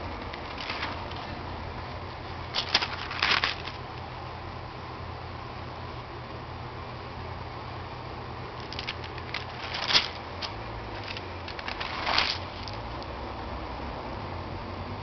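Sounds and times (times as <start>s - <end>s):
steady low hum: 0.0s - 15.0s
stiff paper page rustling: 0.2s - 1.4s, 2.5s - 3.8s, 8.6s - 12.8s.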